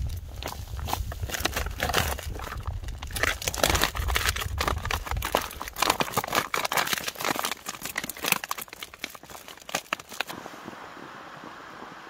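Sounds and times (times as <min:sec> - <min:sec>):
food pouch crinkling: 0:01.1 - 0:10.3.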